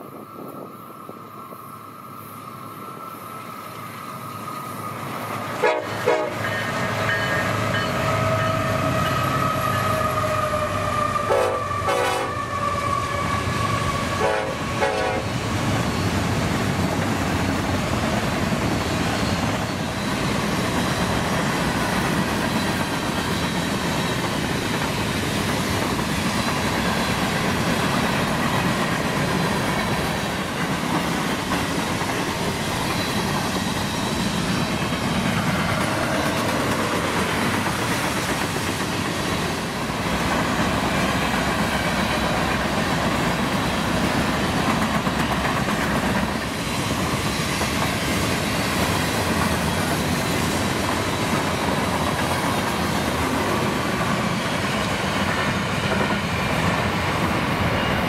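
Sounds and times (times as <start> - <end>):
train horn blast: 5.6 - 6.6, 7.9 - 15.3.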